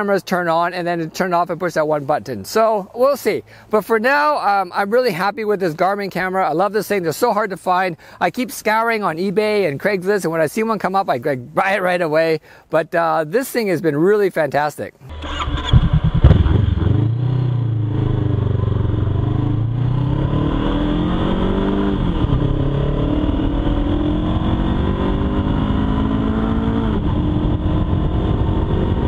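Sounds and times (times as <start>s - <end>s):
motorcycle engine revving: 15.1s - 29.0s.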